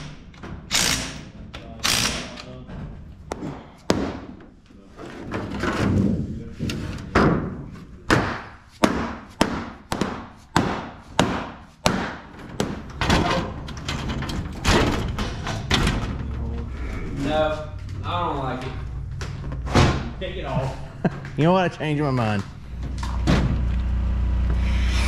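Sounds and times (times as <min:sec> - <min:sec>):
mallet striking a panel: 0:08.1 - 0:12.8.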